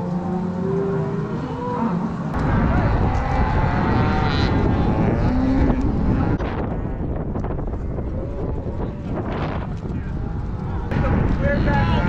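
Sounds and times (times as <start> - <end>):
wind buffeting microphone: 2.3 - 12.0.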